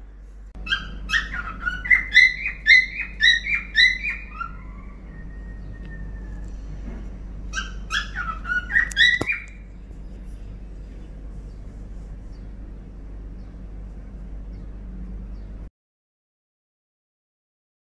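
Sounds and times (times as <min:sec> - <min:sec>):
cockatiel whistled chirps: 0:07.5 - 0:09.5.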